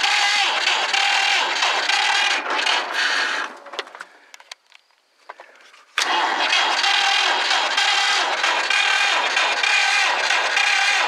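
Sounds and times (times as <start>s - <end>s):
engine cranking by starter: 0.0s - 3.8s, 6.0s - 11.0s.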